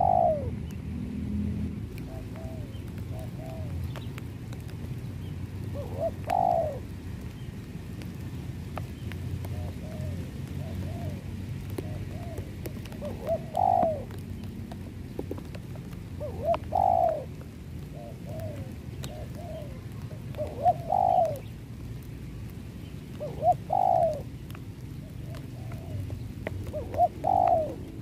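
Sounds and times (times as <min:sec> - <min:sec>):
dove cooing: 0:00.0 - 0:00.6, 0:01.9 - 0:04.1, 0:05.6 - 0:07.0, 0:09.4 - 0:15.5, 0:16.1 - 0:21.5, 0:23.1 - 0:28.0.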